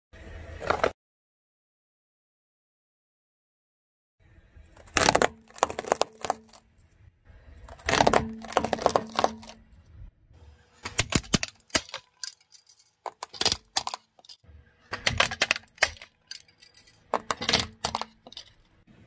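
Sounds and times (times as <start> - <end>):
plastic toys crackling and snapping: 4.7 - 6.9, 7.6 - 9.8, 10.8 - 18.8.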